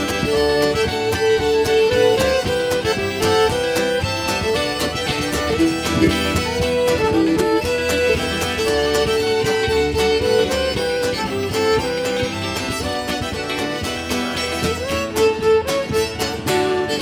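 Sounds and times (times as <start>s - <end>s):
fiddles playing a reel: 0.0s - 17.0s
strummed acoustic guitars: 0.0s - 17.0s
double bass: 3.1s - 11.0s.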